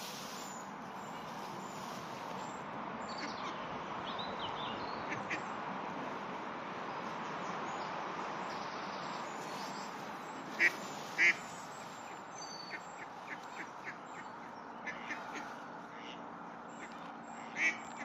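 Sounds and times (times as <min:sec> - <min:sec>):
steady hiss: 0:00.0 - 0:02.5
ducks quacking: 0:10.6 - 0:11.4, 0:14.8 - 0:16.2.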